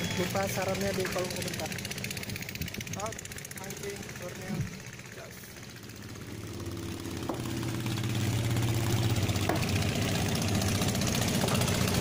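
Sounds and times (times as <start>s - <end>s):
boat engine idling: 0.0s - 12.0s
light knocks: 7.2s - 7.6s.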